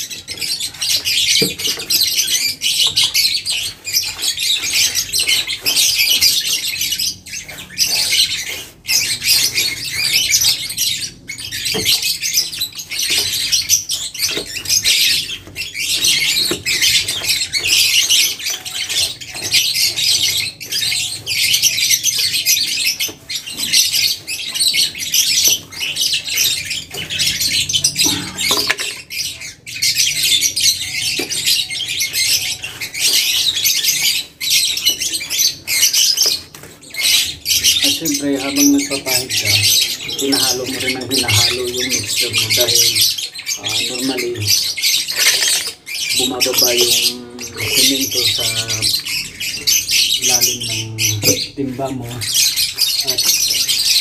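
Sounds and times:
paintbrush scrubbing on concrete: 0:02.0 - 0:10.8.

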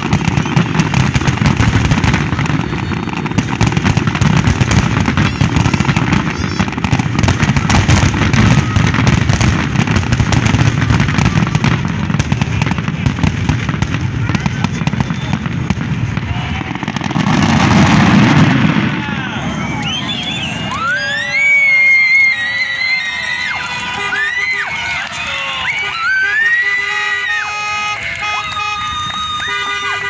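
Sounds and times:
fireworks booming and crackling: 0:00.0 - 0:30.0.

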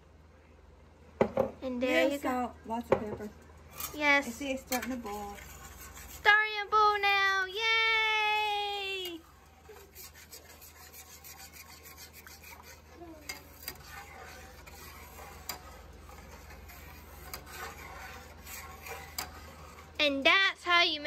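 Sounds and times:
metal spatula scraping a pan: 0:03.7 - 0:07.0, 0:08.4 - 0:20.3.

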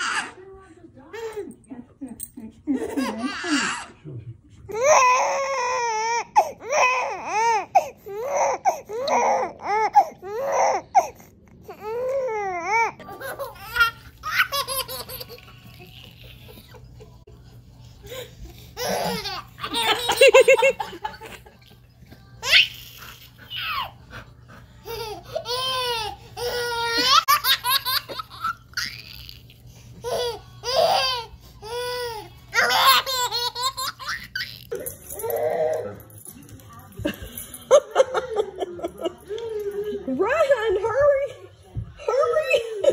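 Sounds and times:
babies giggling: 0:12.7 - 0:17.4, 0:18.1 - 0:35.8.

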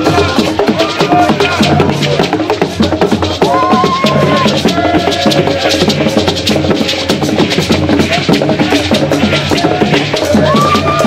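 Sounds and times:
fast group drumming: 0:00.0 - 0:11.0.

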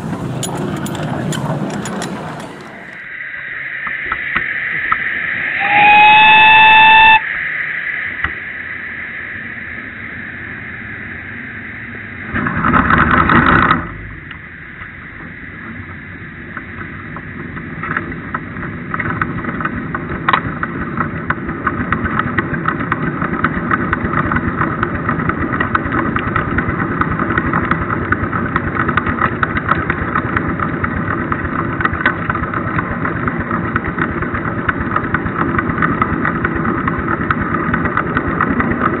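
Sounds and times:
loud steam hiss: 0:05.4 - 0:07.2
steam whistle: 0:05.4 - 0:07.4
steam locomotive beat: 0:05.6 - 0:07.2.

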